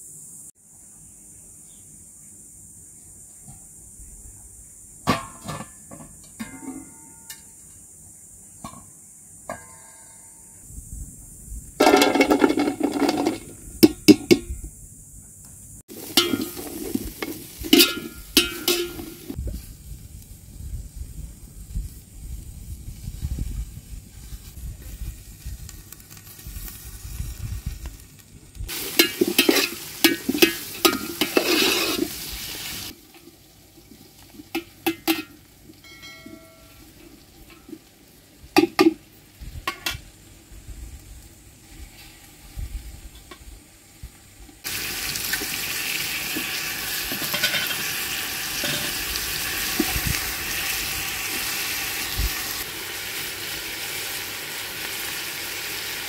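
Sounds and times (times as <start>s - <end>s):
onions scraping in steel pot: 15.9s - 19.4s, 28.7s - 33.2s.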